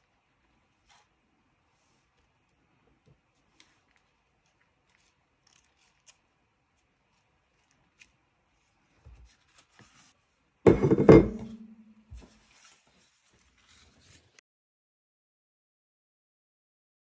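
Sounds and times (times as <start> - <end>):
paper rustling: 3.3 - 10.4, 12.1 - 14.4
objects knocking on table: 10.7 - 11.7.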